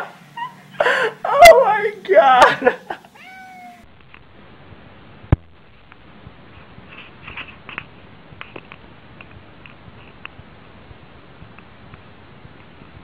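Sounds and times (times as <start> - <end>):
cat paws scratching on rug: 6.4 - 10.3.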